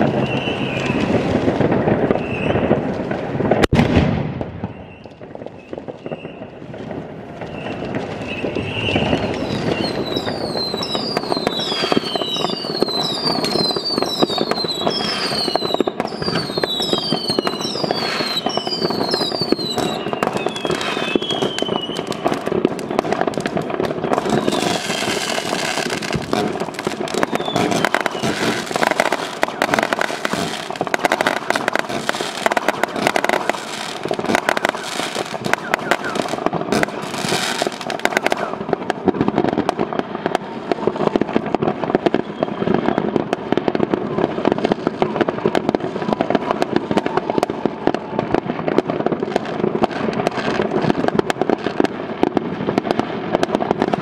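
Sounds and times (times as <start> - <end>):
falling firework whistles: 0.0 - 2.8, 3.6 - 6.6, 7.4 - 43.9
fireworks crackling and popping: 0.0 - 54.0.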